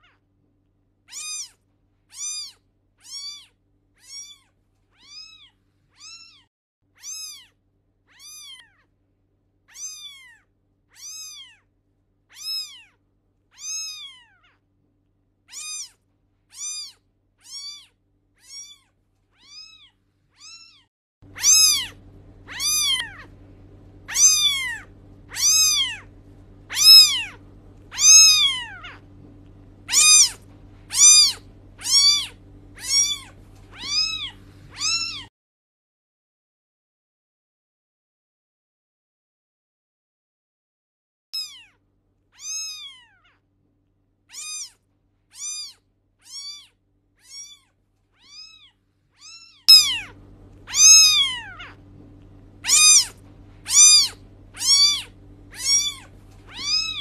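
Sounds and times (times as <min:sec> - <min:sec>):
low steady hum: 0:00.0 - 0:35.3, 0:41.4 - 0:57.0
cat meowing: 0:01.1 - 0:08.9, 0:09.7 - 0:11.7, 0:12.3 - 0:14.6, 0:15.5 - 0:23.4, 0:24.1 - 0:29.1, 0:29.8 - 0:35.3, 0:41.4 - 0:41.8, 0:42.4 - 0:43.4, 0:44.3 - 0:51.8, 0:52.6 - 0:57.0.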